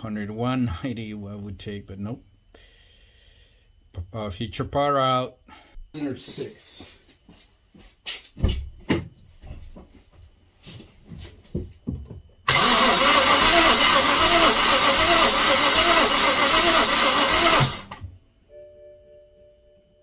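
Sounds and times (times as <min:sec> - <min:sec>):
engine cranked by starter motor: 0:12.5 - 0:18.1.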